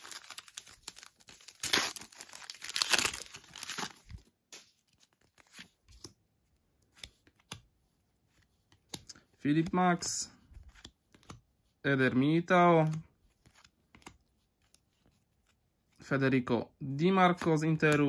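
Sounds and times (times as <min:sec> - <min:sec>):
foil wrapper tearing and crinkling: 0:00.0 - 0:04.1
cards being handled: 0:00.0 - 0:11.6, 0:12.2 - 0:16.0.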